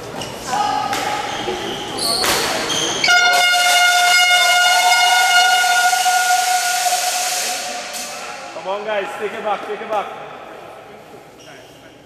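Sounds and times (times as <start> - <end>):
steady horn tone: 3.0 - 9.4
hiss: 5.6 - 8.6.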